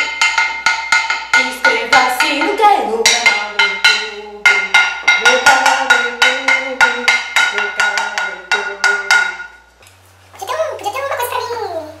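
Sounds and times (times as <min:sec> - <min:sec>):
wooden spoon beating metal pot: 0:00.0 - 0:09.7
woman singing: 0:01.4 - 0:09.6.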